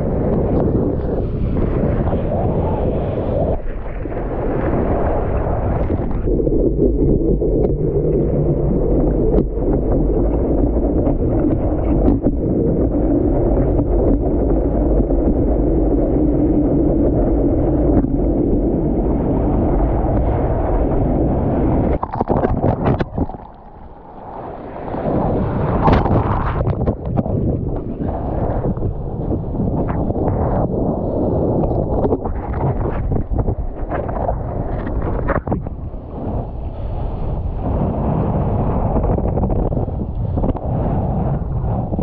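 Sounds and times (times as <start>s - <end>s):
wind buffeting microphone: 0.0s - 42.0s
water splashing: 21.7s - 30.6s.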